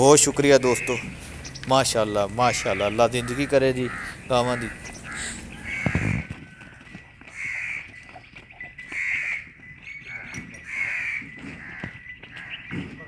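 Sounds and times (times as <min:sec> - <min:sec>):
bird calling: 0:00.0 - 0:13.0.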